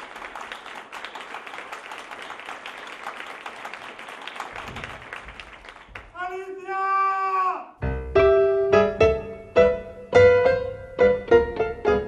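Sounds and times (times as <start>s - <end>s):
applause: 0.0s - 6.5s.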